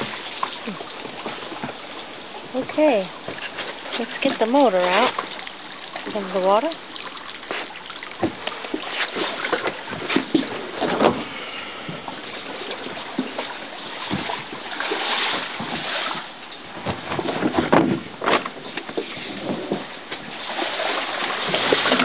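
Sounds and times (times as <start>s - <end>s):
water sloshing around boat: 0.0s - 22.0s
branches and hull knocking: 7.4s - 22.0s.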